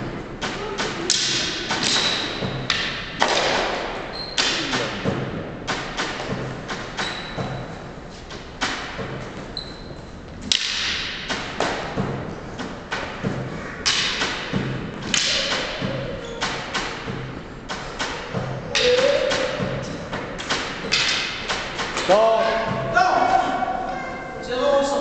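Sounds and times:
wooden canes clacking: 0:00.0 - 0:09.6, 0:10.4 - 0:23.7.

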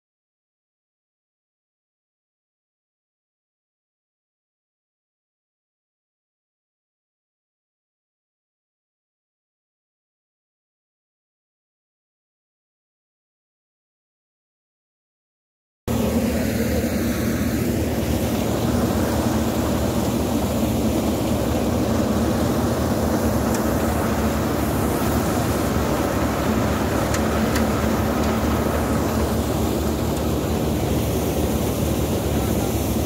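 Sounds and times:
tractor and thresher drone: 0:15.9 - 0:33.0.

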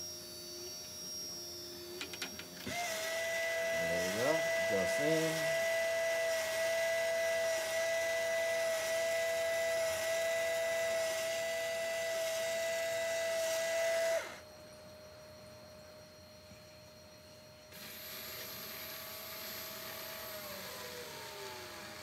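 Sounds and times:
motor whining with hiss: 0:00.0 - 0:14.5, 0:17.7 - 0:22.0
faint hum: 0:00.0 - 0:22.0.

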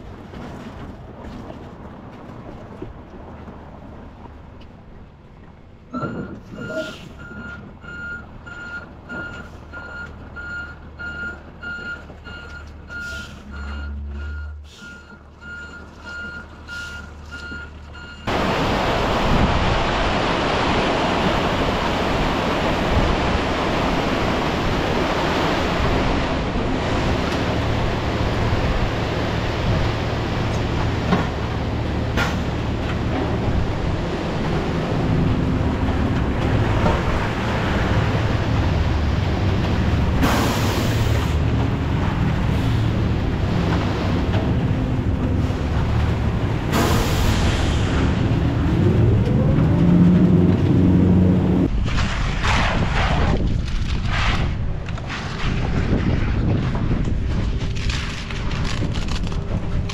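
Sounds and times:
low engine rumble: 0:00.0 - 0:59.9
backup alarm beeping: 0:05.9 - 0:18.3
wind buffeting microphone: 0:47.9 - 0:59.9.

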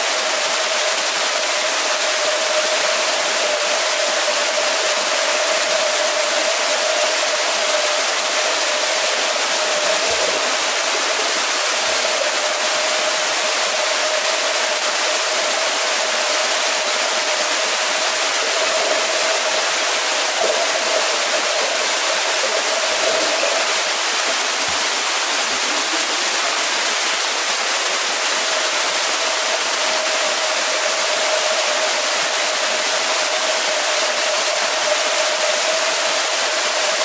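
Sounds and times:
rushing pool water: 0:00.0 - 0:37.0
constant hum: 0:15.4 - 0:26.6.

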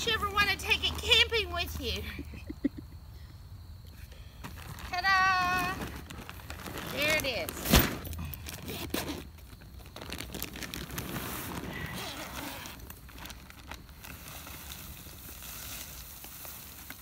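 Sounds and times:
nylon bag rustling: 0:04.5 - 0:17.0
zipper opening: 0:05.5 - 0:09.3, 0:10.7 - 0:12.9.

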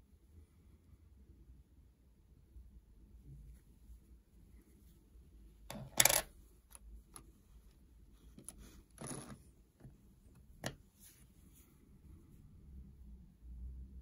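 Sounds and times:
coin scraping: 0:05.7 - 0:06.3, 0:09.0 - 0:09.4
coins clinking: 0:05.9 - 0:06.3.

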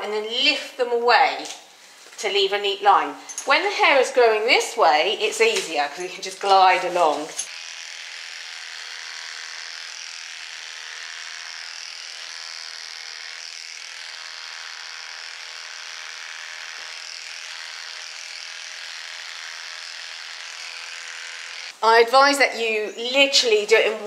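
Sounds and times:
electric clippers running: 0:06.8 - 0:21.8.

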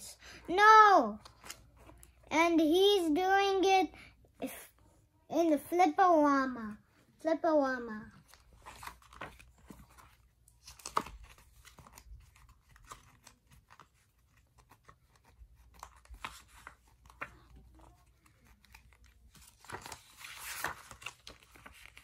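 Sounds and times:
comic book pages flipping: 0:01.1 - 0:02.3, 0:08.1 - 0:22.0.

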